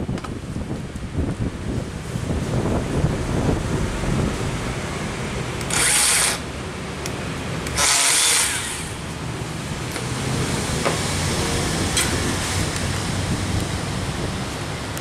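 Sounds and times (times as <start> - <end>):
band saw cutting steel tube: 3.3 - 6.6, 7.6 - 9.0.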